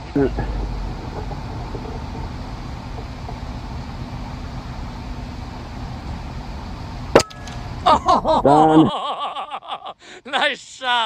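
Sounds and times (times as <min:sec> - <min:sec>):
low rumble: 0:00.0 - 0:08.4
outdoor rushing background noise: 0:00.0 - 0:08.6.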